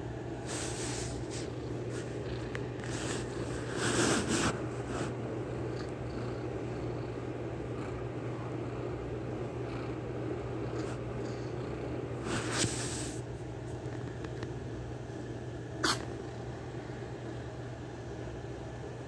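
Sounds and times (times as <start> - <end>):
kitten purring: 0.5 - 13.1, 15.8 - 16.2.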